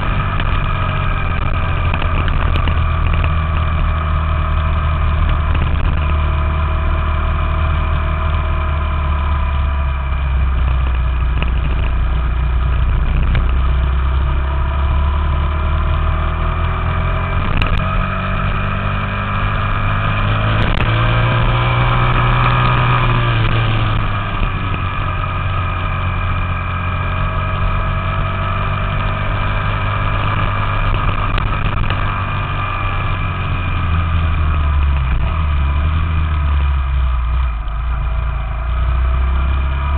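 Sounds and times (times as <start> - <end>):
motorbike engine running: 0.0 - 39.9
road noise: 0.0 - 39.9.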